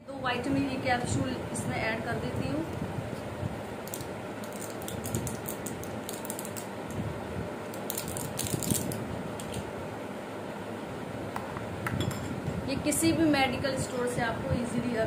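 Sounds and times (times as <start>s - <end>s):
capsules clicking and crackling: 3.8s - 6.7s.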